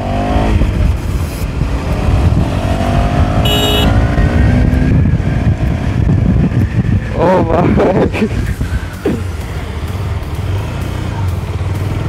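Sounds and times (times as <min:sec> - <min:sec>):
wind rumble on microphone: 0:00.0 - 0:08.9
motorcycle engine accelerating: 0:00.0 - 0:12.0
brief high beep: 0:03.4 - 0:03.9.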